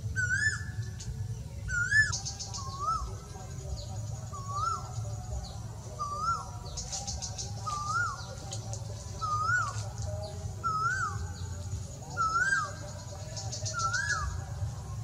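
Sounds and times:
birds chirping faintly: 0.0 - 15.0.

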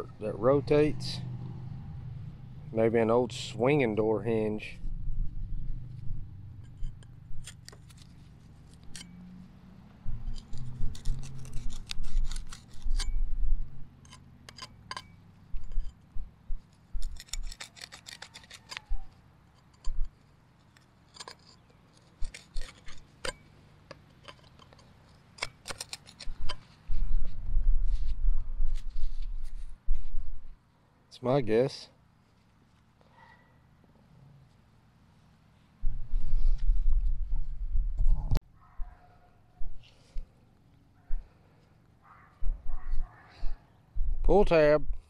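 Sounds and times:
metal clicking and scraping: 5.6 - 9.4, 10.0 - 27.4
low thuds of digging: 10.0 - 13.9, 14.7 - 17.6.

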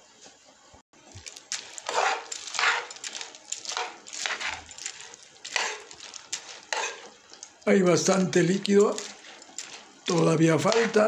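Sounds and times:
metal spoon scraping frying pan: 1.2 - 11.0.

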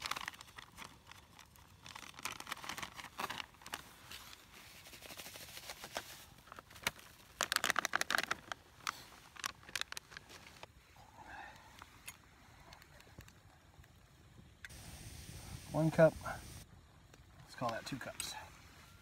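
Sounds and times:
packaging crinkling: 0.0 - 10.7.

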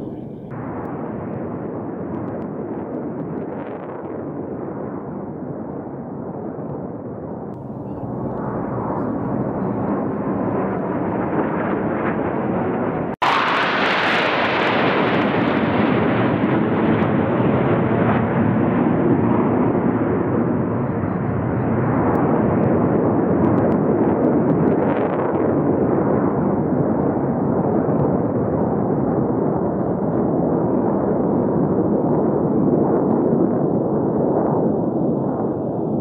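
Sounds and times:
jet aircraft flying past: 7.7 - 23.3.

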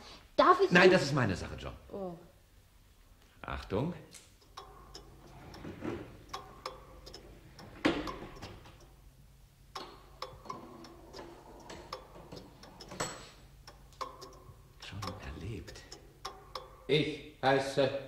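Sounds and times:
mechanical ticks and clicks: 4.2 - 16.9.

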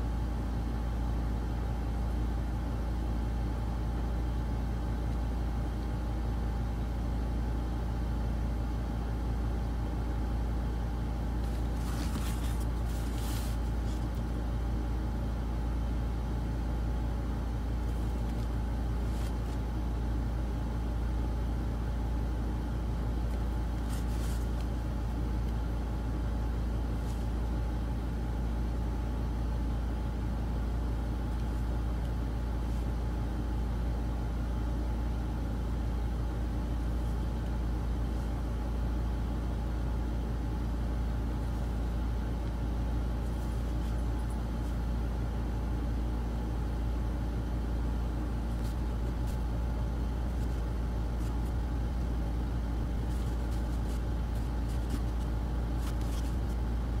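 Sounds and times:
faint steady whine: 0.0 - 57.0
low background rumble: 0.0 - 57.0
soft scratchy sounds: 50.2 - 56.8.

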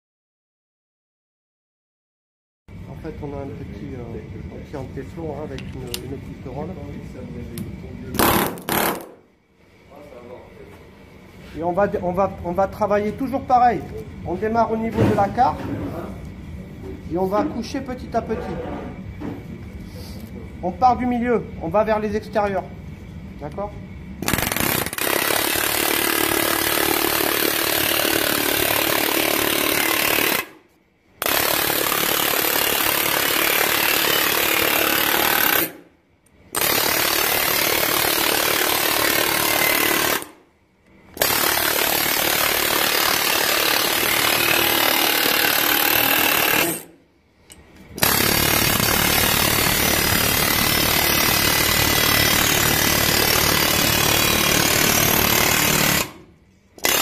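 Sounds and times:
pneumatic hammer on sheet metal: 8.1 - 9.2, 31.2 - 35.8, 41.2 - 47.0.

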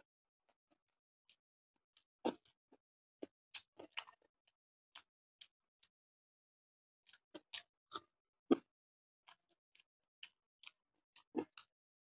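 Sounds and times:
person chewing food: 2.2 - 2.6, 3.2 - 4.2, 7.0 - 8.7, 9.3 - 11.7.

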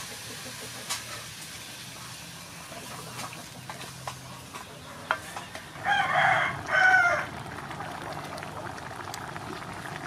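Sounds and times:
rooster crowing: 5.8 - 7.3.

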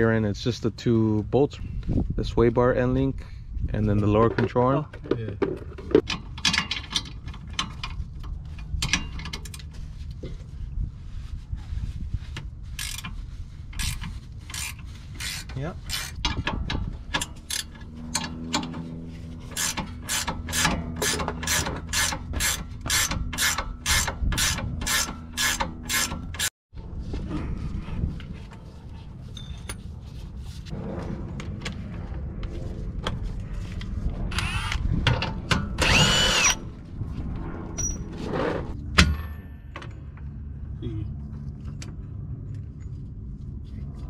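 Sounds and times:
power tool whirring: 35.8 - 36.6.

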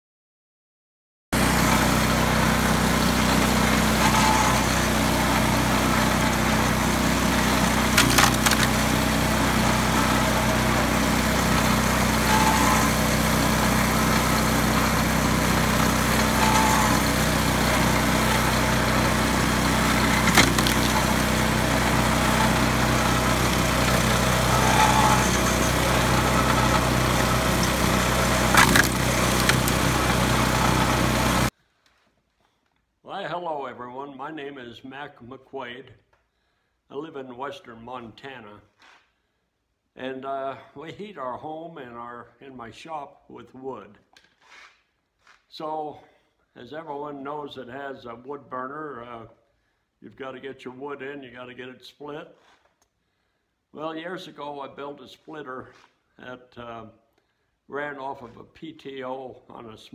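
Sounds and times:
log splitter engine running: 1.4 - 31.5
logs splitting with sharp cracks: 8.0 - 8.8, 20.2 - 21.0, 28.5 - 29.8.

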